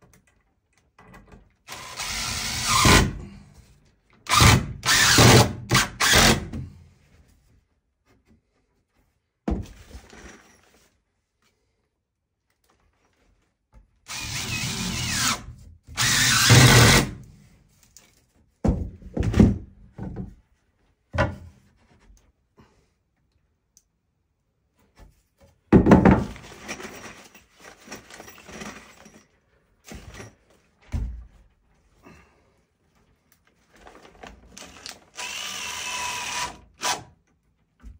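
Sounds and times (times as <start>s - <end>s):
cordless drill driving a screw: 1.7s - 3.1s, 4.3s - 6.5s, 14.1s - 15.4s, 16.0s - 17.1s, 34.6s - 37.1s
knocks and thumps of wood and tools: 9.4s - 10.1s, 18.4s - 20.5s, 21.1s - 22.2s, 24.9s - 27.0s, 29.8s - 31.5s.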